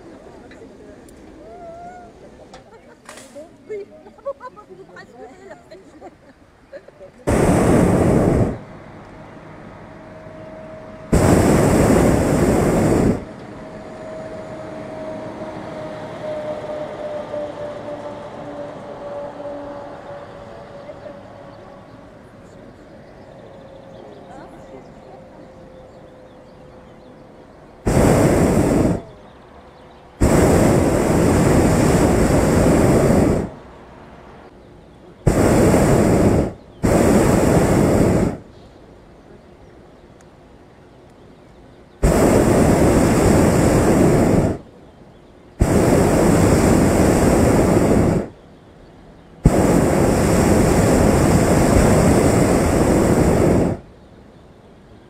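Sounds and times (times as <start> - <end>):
propane burner blasts: 7.3 - 22.2, 27.0 - 29.2, 29.8 - 33.8, 35.2 - 38.6, 42.0 - 44.8, 45.5 - 48.4, 49.3 - 54.0.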